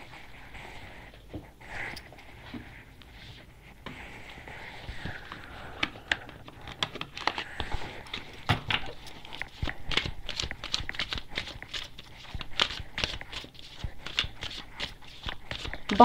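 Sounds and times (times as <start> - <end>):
cards being shuffled: 5.0 - 16.0.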